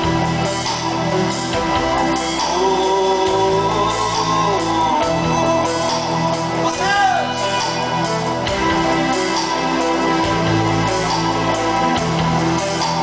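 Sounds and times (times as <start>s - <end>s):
live rock band playing: 0.0s - 13.0s
singer holding long notes: 2.2s - 8.0s.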